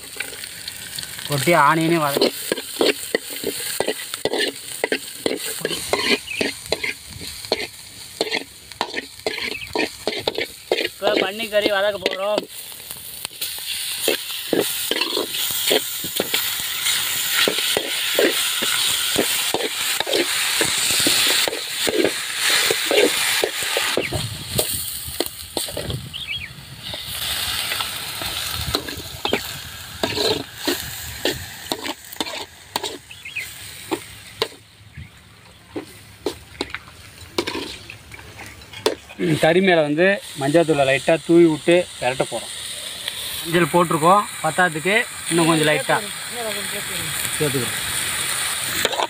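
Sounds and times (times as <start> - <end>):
meat sizzling in hot oil: 0.0 - 34.7, 38.8 - 49.0
steel ladle scraping a pan: 2.0 - 12.5, 13.3 - 26.0, 26.8 - 33.1, 35.8 - 39.5.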